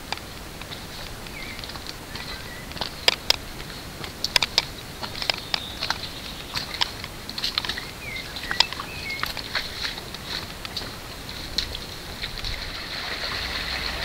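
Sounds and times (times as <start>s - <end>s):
footsteps crunching on stones: 0.0s - 14.0s
faint bird chirps: 1.2s - 3.0s, 5.2s - 6.8s, 7.7s - 9.6s.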